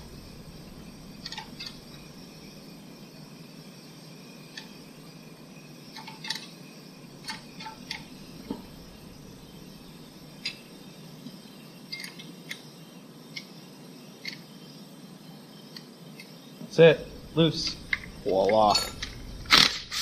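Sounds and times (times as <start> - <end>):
low hum: 0.0 - 3.2, 7.7 - 10.9, 16.8 - 20.0.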